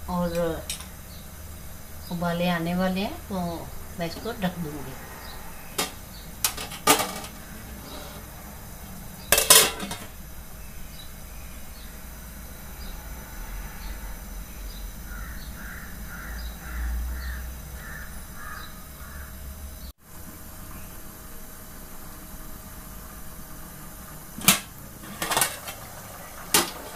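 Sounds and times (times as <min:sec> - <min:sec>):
metal lid clanking on a pot: 0:09.3 - 0:10.1.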